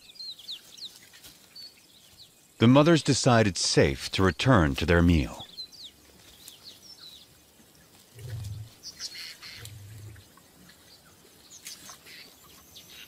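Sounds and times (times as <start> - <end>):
birds chirping and calling: 4.1 - 13.0
short low rumbles: 8.2 - 8.7.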